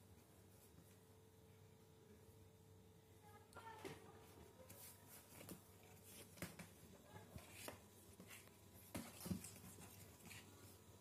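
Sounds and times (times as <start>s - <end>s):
kittens' claws scrabbling on cardboard: 5.4s - 10.5s.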